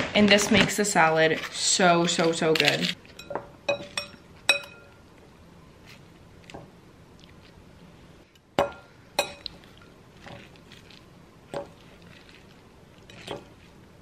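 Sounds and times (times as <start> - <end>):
metal fork clinking on glass bowl: 3.2 - 4.9, 9.2 - 9.5.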